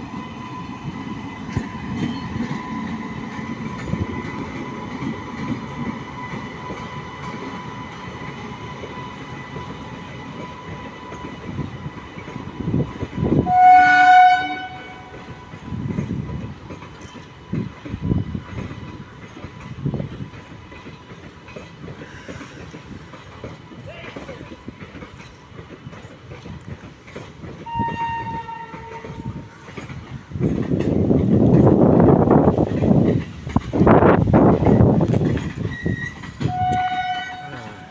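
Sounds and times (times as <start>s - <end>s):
electric locomotive rumbling past: 0.0s - 37.9s
train horn blast: 13.4s - 15.3s, 27.6s - 29.4s, 36.4s - 37.9s
wheels clattering over rail joints: 14.6s - 37.9s.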